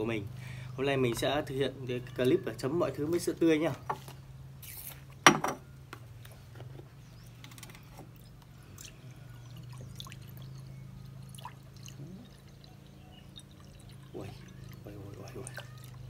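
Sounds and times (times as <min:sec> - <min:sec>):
milk trickling into a bowl: 0:08.1 - 0:16.0.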